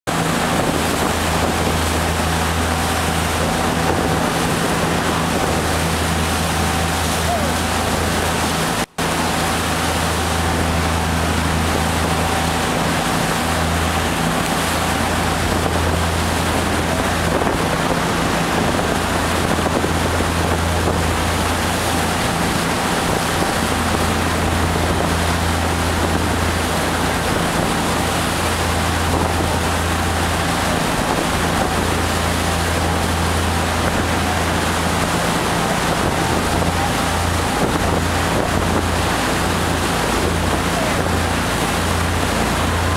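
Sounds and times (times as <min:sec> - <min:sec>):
water rushing along hull: 0:00.0 - 0:42.9
boat engine humming: 0:00.1 - 0:42.9
wind buffeting microphone: 0:00.1 - 0:42.9.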